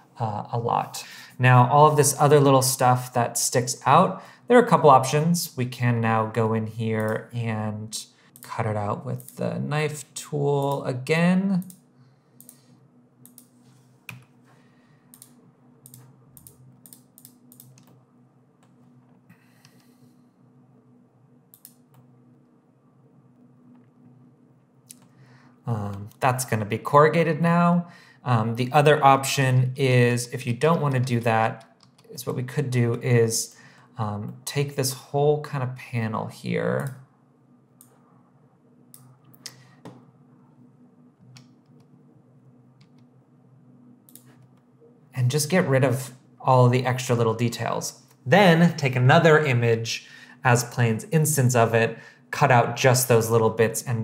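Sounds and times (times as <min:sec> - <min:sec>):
low steady hum: 0:00.0 - 0:54.0
keyboard and mouse clicking: 0:15.1 - 0:18.0, 0:21.5 - 0:22.1, 0:31.7 - 0:32.1.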